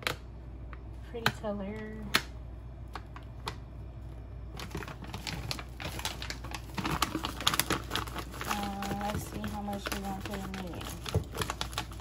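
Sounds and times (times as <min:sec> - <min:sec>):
plastic packaging crinkling: 0:02.8 - 0:12.0.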